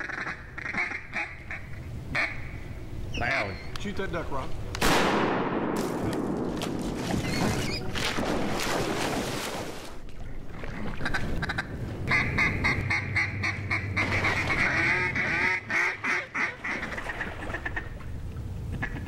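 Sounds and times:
duck call quacks: 0.0s - 2.6s, 11.0s - 17.8s
water splashing: 6.5s - 11.4s.

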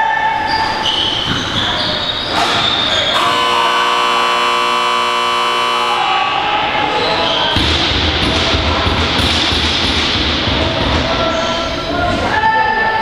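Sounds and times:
arena buzzer blaring: 3.1s - 6.7s.

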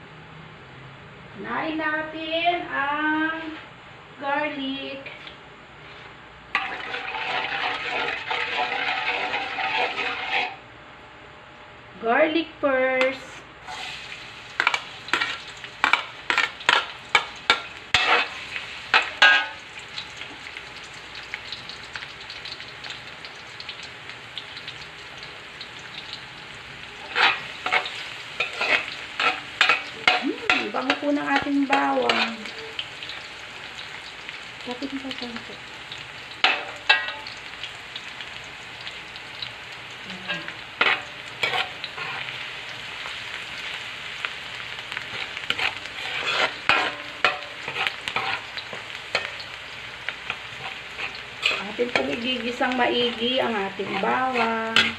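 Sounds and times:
garlic sizzling in oil: 5.8s - 10.6s, 13.1s - 54.9s
metal spatula clanking on wok: 27.1s - 32.4s, 36.4s - 37.3s, 46.3s - 48.4s, 54.0s - 54.9s.

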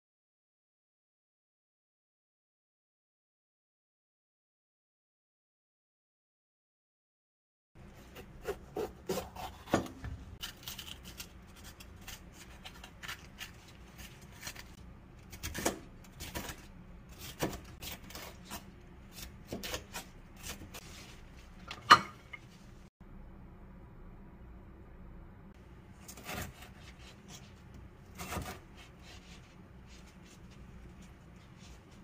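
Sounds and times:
knife slicing on cutting board: 8.0s - 14.7s, 15.3s - 21.2s, 26.0s - 32.0s.

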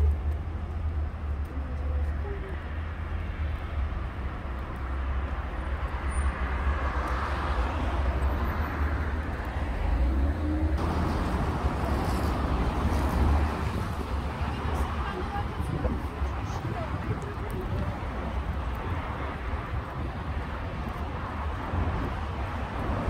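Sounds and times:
street traffic: 0.0s - 23.0s
wind rumble on microphone: 0.0s - 23.0s
vehicle passing: 4.8s - 23.0s.

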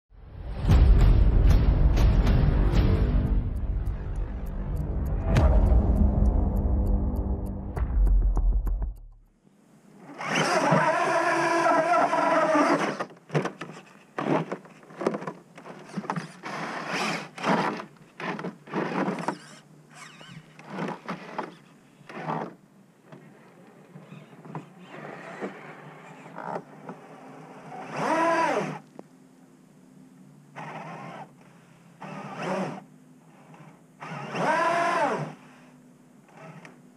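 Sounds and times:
electric motor whining: 33.4s - 35.4s.

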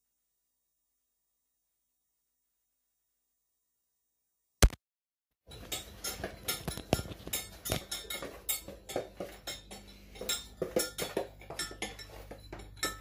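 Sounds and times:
spoon scraping glass bowl: 5.5s - 13.0s.

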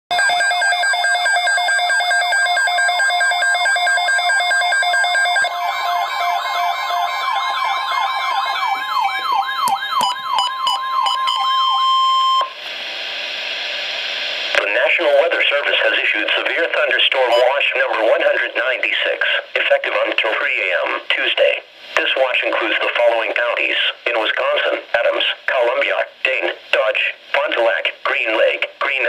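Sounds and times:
electronic alert alarm: 0.1s - 12.5s, 17.3s - 17.6s
fast warbling siren: 0.5s - 12.5s
radio hiss: 12.5s - 29.0s
steady alert tone: 17.3s - 17.6s.

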